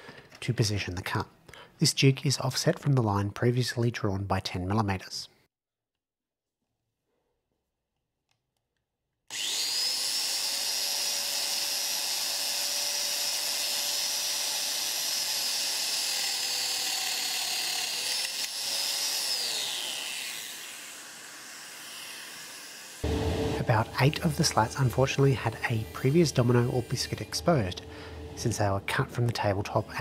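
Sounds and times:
joiner motor whine: 0:22.8 - 0:28.6.

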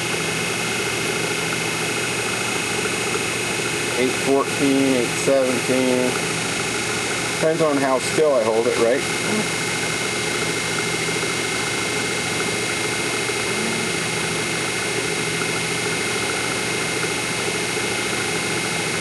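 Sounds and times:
metal lathe drone: 0:00.0 - 0:19.0
high-pitched whine: 0:08.7 - 0:14.8.

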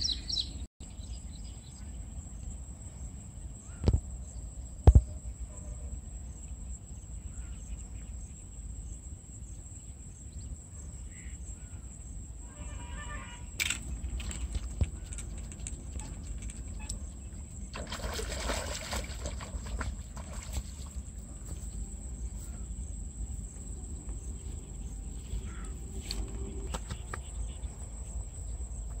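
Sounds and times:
fish splashing in water: 0:13.9 - 0:21.1.

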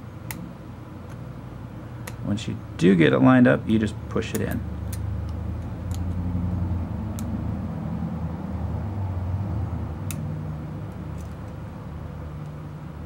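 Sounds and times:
low motor rumble: 0:00.0 - 0:13.0.

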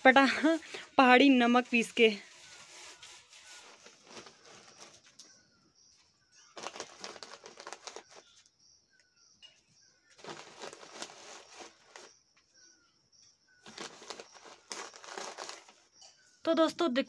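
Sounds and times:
newspaper rustling and crinkling: 0:00.3 - 0:05.4, 0:06.4 - 0:08.5, 0:10.1 - 0:12.2, 0:13.6 - 0:15.9.

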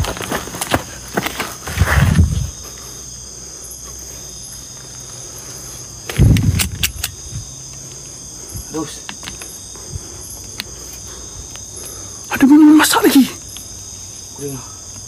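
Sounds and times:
footsteps and rustling: 0:00.0 - 0:03.1
crickets trilling: 0:00.0 - 0:15.0.

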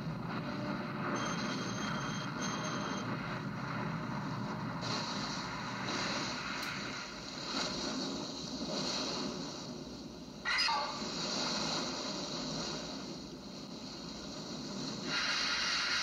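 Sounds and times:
ship engine and water rush: 0:03.8 - 0:16.0.

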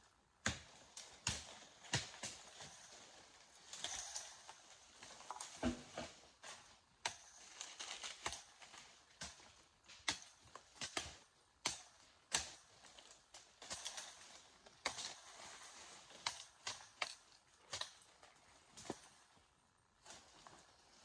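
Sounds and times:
machete chopping brush: 0:00.4 - 0:03.0, 0:07.0 - 0:12.9
leaves and branches rustling: 0:00.4 - 0:21.0.

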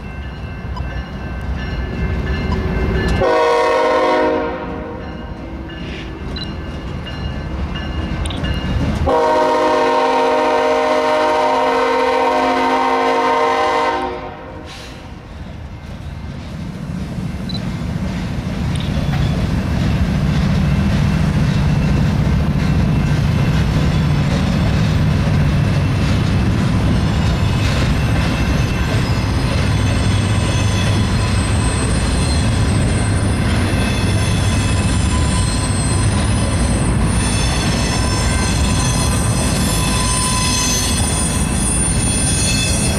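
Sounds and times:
diesel locomotives passing: 0:00.0 - 0:42.9
rumble and clatter of train cars: 0:00.0 - 0:42.9
freight train horn blast: 0:03.2 - 0:05.1, 0:09.1 - 0:15.1.

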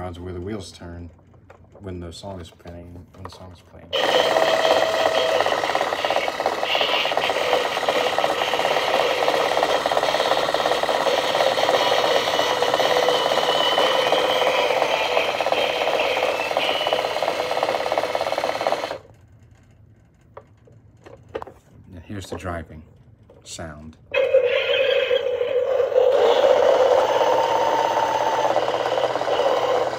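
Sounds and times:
toy car motor and gears whirring: 0:03.9 - 0:19.0, 0:24.1 - 0:29.9.

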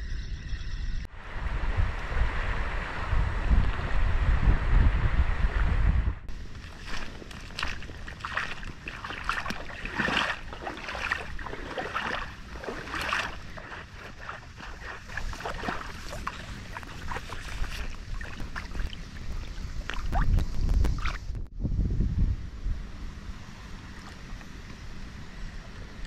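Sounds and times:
wind buffeting microphone: 0:00.0 - 0:23.5
dry reeds rustling: 0:06.4 - 0:18.8.

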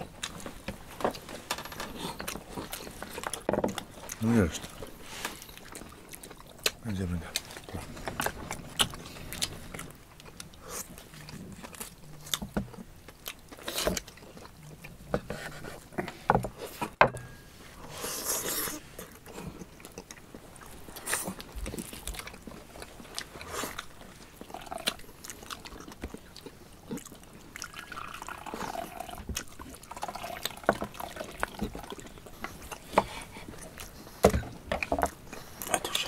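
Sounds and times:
chewing and mouth sounds: 0:00.0 - 0:17.0, 0:18.0 - 0:36.0
liquid pouring into a bowl: 0:27.6 - 0:29.2.

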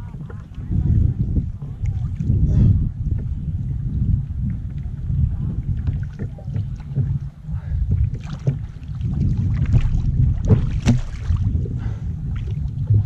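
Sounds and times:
water splashing against kayak hull: 0:00.0 - 0:13.0
wind rumble on microphone: 0:00.0 - 0:13.0
sharp knocks: 0:10.5 - 0:11.1.

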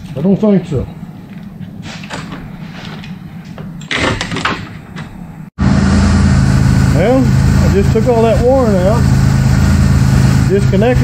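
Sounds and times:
car engine idling: 0:05.6 - 0:11.0.

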